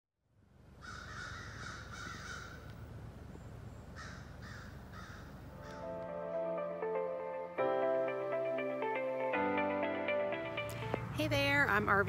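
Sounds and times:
crow cawing: 0.8s - 2.7s, 4.0s - 5.9s.

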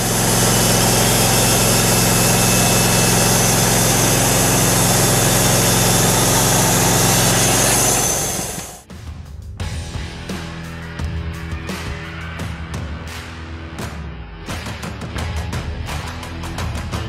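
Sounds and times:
sawmill engine running: 0.0s - 8.9s.

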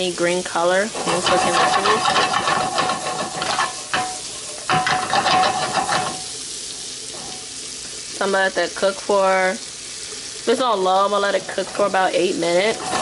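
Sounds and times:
vegetables sizzling in butter: 0.0s - 13.0s
utensil scraping a pan: 0.6s - 6.3s, 7.1s - 7.5s, 11.2s - 13.0s.

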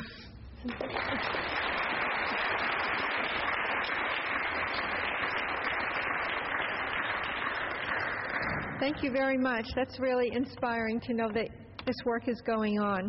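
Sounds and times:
audience applauding: 0.6s - 9.0s.

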